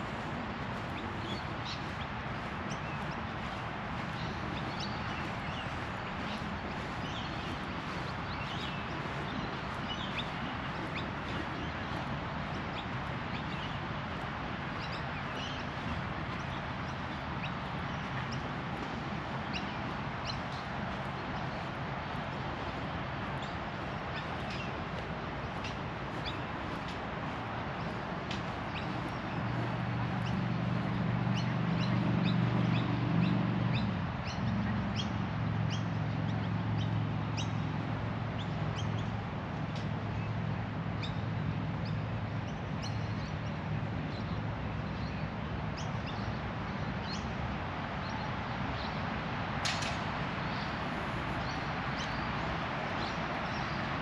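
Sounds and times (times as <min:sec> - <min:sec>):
steady rushing background: 0:00.0 - 0:33.4
birds chirping: 0:00.0 - 0:37.6.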